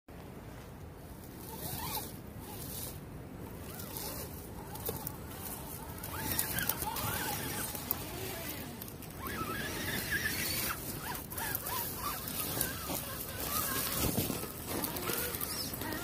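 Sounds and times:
tyres crunching through leaves: 0.5s - 16.0s
electric toy car motors whirring: 1.3s - 16.0s.

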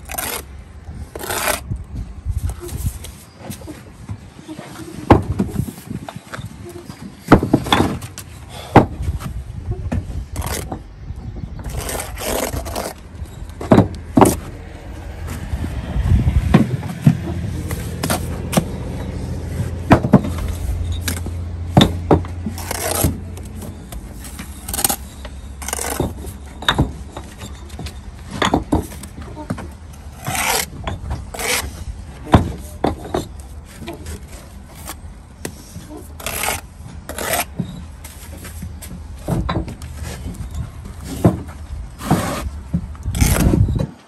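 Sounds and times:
trowel scraping mortar: 0.0s - 0.5s, 1.1s - 1.6s, 11.6s - 13.0s, 22.5s - 26.4s, 30.1s - 31.9s, 35.9s - 37.9s, 42.0s - 43.8s
low rumble: 14.0s - 24.2s.

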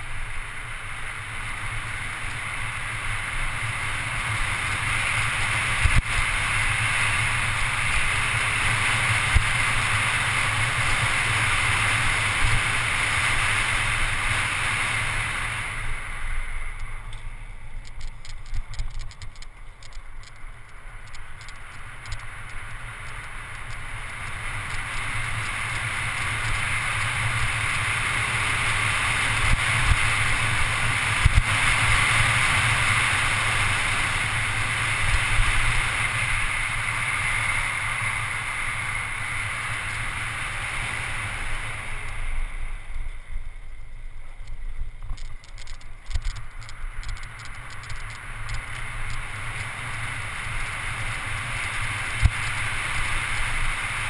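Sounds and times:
bicycle tyre noise on road: 0.0s - 54.0s
faint rapid ticks: 16.7s - 39.3s, 41.5s - 54.0s.

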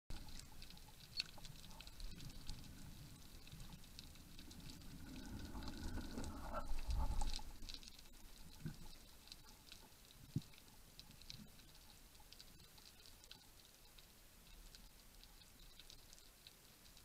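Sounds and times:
low underwater rumble: 0.1s - 12.1s
faint crackling clicks underwater: 0.1s - 17.0s.

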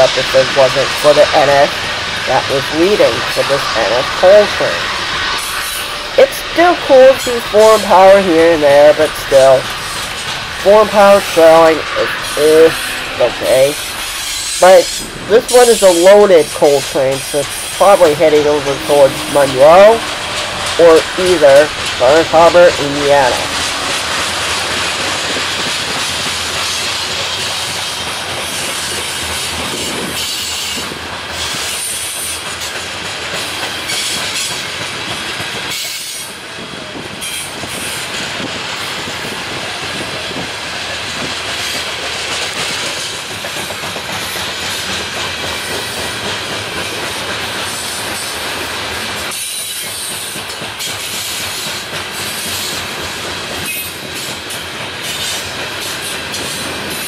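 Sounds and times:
steel wheels clacking on rail joints: 0.0s - 57.0s
train cars rolling past: 0.0s - 57.0s.

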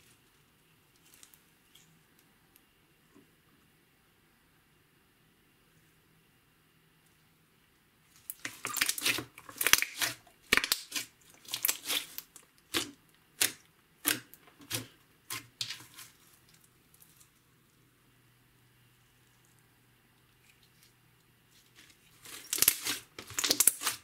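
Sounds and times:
slime crackling and popping: 8.2s - 17.3s, 22.1s - 24.0s.

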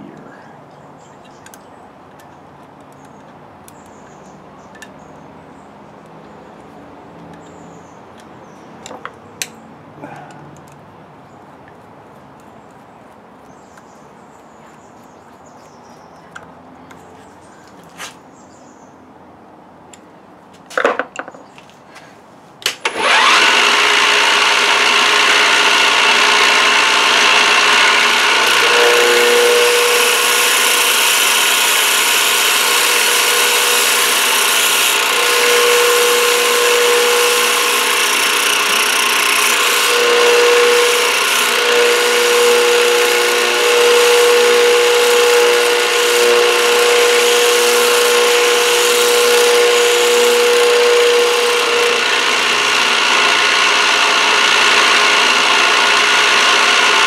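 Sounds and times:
milling machine cutting metal: 22.8s - 57.0s.

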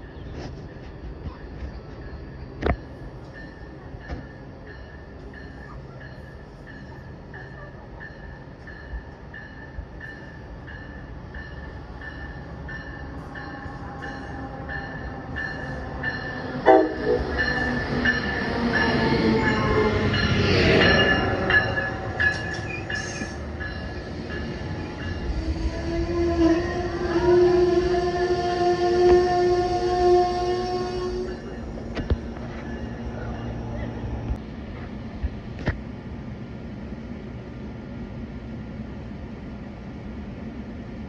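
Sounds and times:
train rumbling: 0.0s - 41.0s
train horn blast: 16.6s - 17.4s, 25.3s - 31.4s.

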